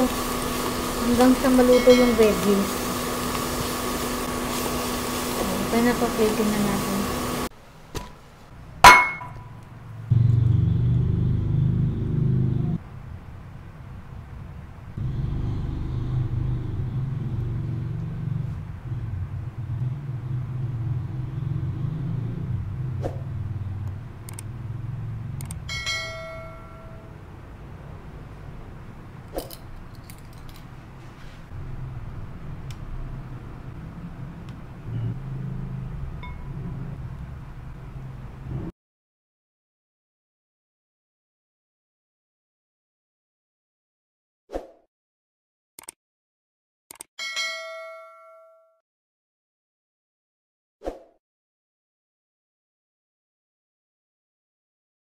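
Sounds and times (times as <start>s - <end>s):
bowls clinking: 8.9s - 9.5s.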